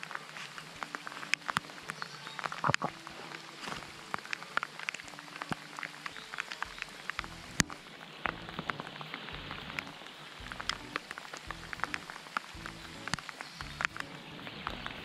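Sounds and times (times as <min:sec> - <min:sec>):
raindrop ticks: 0:00.0 - 0:15.0.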